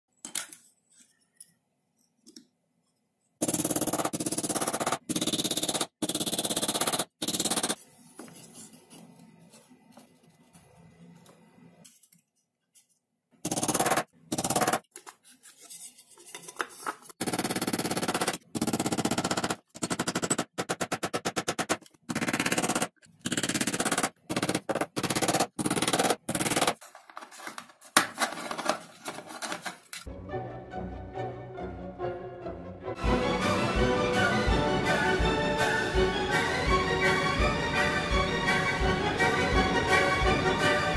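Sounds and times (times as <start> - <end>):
background music: 30.1 - 40.9.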